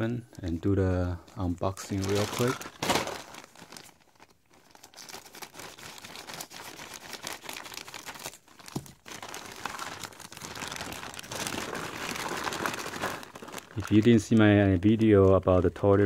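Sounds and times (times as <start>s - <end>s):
plastic bag crinkling: 0.4s - 16.0s
scissors cutting plastic bag: 1.9s - 3.8s.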